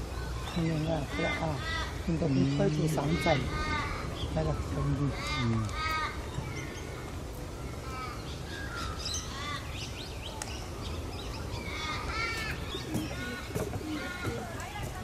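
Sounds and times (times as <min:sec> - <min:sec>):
outdoor background noise: 0:00.0 - 0:15.0
harsh caw-like animal calls: 0:01.0 - 0:02.1, 0:02.9 - 0:06.8, 0:07.8 - 0:09.8, 0:11.6 - 0:14.5.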